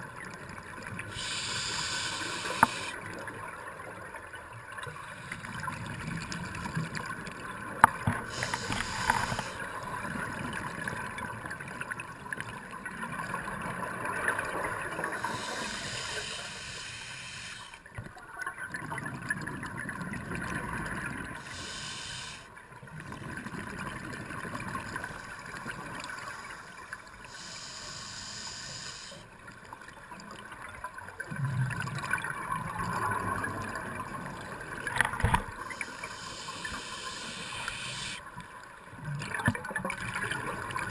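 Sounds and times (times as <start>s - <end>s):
hissing exhaled bubbles: 1.1s - 3.0s, 14.8s - 17.8s
underwater regulator gurgling: 1.1s - 3.0s, 8.0s - 9.7s, 14.7s - 17.7s, 34.9s - 38.2s.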